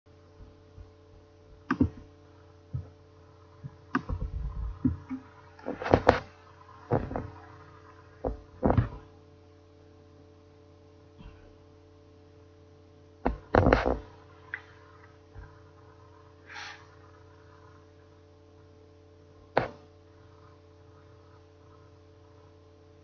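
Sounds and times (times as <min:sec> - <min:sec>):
steady low hum: 0:00.1 - 0:23.0
sudden thumps and knocks: 0:00.4 - 0:02.1.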